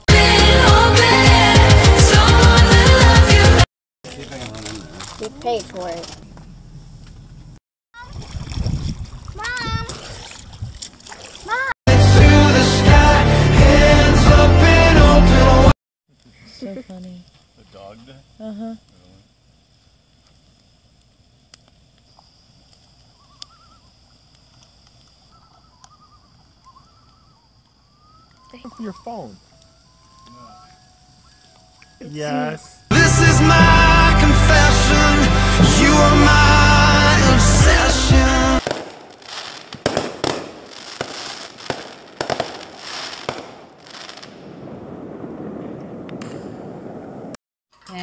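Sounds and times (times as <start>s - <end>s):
campfire crackling: 0.0s - 7.6s, 15.5s - 47.4s
background noise: 16.1s - 33.0s
distant loons calling: 23.0s - 24.0s, 25.2s - 32.0s
fireworks bangs and crackling: 37.3s - 47.4s.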